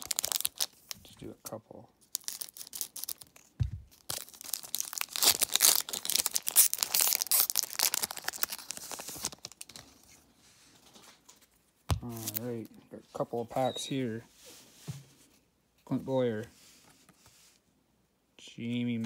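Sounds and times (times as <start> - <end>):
foil wrapper tearing: 0.0 - 0.9, 2.1 - 9.8
wrapper rustling: 0.0 - 1.0, 2.0 - 12.7.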